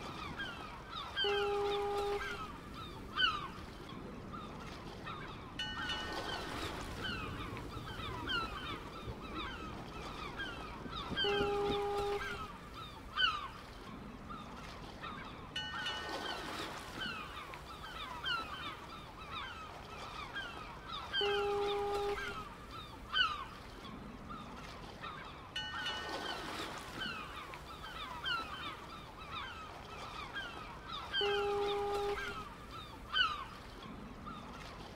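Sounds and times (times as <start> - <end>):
flock of birds calling: 5.2 - 13.6, 25.6 - 33.7.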